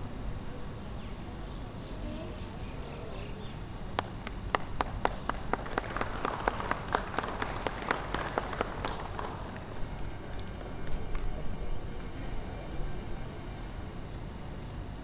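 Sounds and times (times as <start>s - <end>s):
audience clapping in rhythm: 4.0s - 11.3s.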